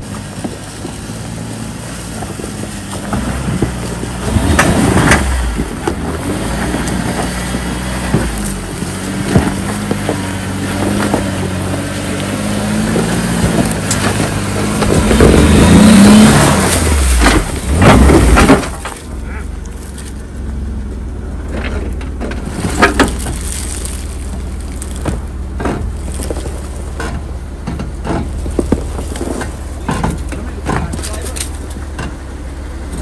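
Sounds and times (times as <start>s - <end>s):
engine running at low revs: 0.0s - 33.0s
tyres and underbody scraping rock: 0.0s - 33.0s.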